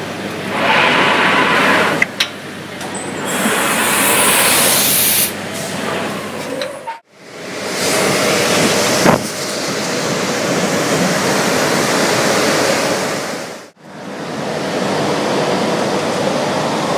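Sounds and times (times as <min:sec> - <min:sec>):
long hissing bursts: 0:03.3 - 0:05.4.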